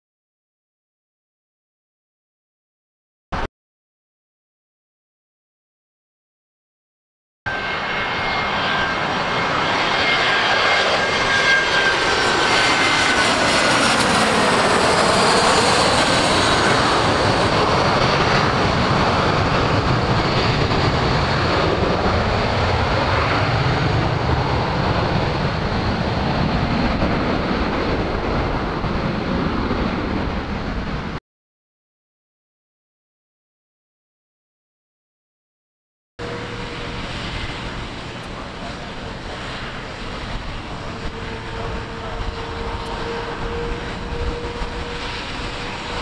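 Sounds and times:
deep rumble of plane landing: 7.5s - 31.2s, 36.2s - 46.0s
jet engines whining: 7.5s - 31.2s, 36.2s - 46.0s.

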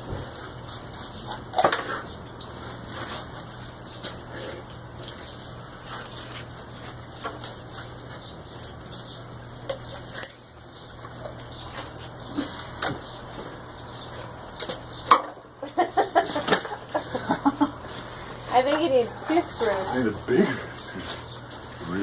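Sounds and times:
knife scraping fish: 0.4s - 1.7s.

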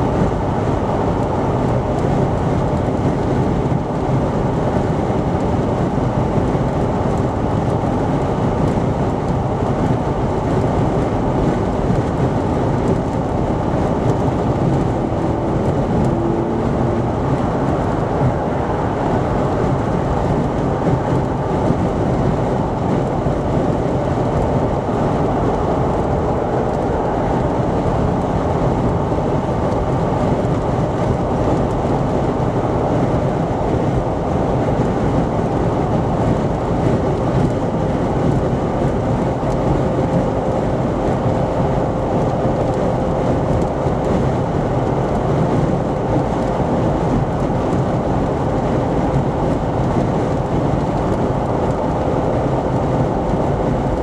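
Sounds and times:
road and tyre noise: 0.0s - 54.0s.

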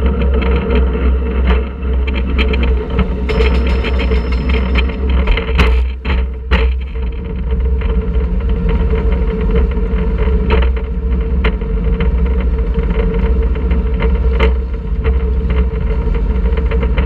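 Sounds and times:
roller coaster lift mechanical hum: 0.0s - 17.0s
loud clacks: 1.5s - 6.8s
chain lift rapid clicking: 2.1s - 5.7s.

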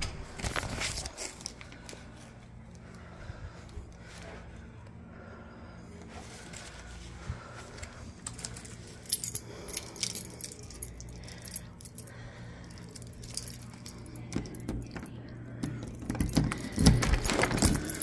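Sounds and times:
keys jangling: 8.2s - 18.0s.

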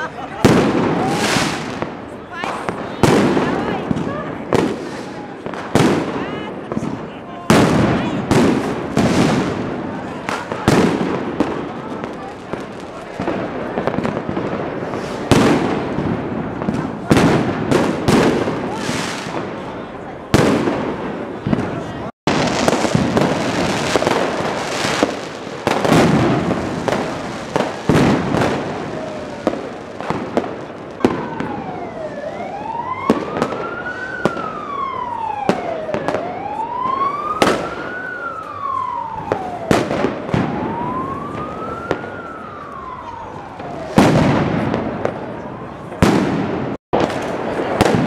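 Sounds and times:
fireworks and firecrackers banging: 0.0s - 48.0s
emergency siren wailing: 22.5s - 46.1s.

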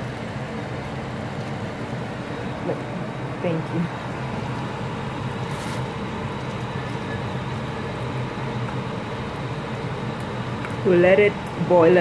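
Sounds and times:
steady hum and hiss: 0.0s - 12.0s
faint scrape in pot: 5.5s - 5.9s.

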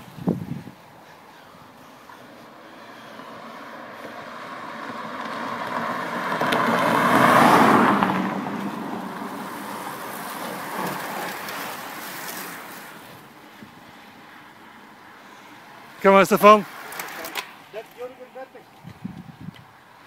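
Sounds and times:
car passing by: 1.6s - 18.6s
bicycle tyres hissing: 7.0s - 17.8s.

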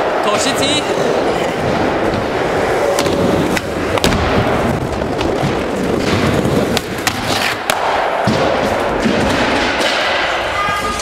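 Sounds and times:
skateboard wheels rolling on concrete: 0.0s - 11.0s
skateboard landing clack: 1.6s - 10.4s.

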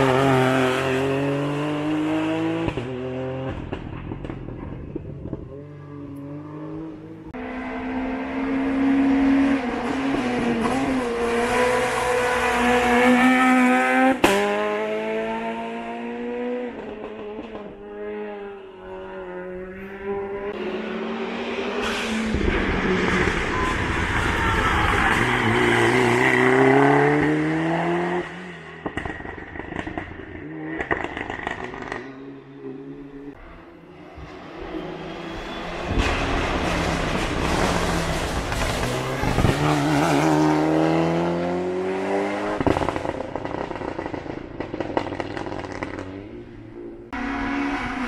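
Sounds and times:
race car engine revving: 0.0s - 3.8s, 33.2s - 48.0s.

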